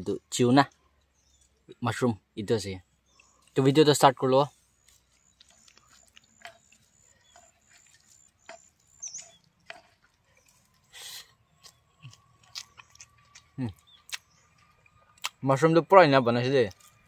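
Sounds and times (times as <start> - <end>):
fingers mixing rice squelching: 3.1 - 15.4
mouth eating sounds: 5.0 - 15.4.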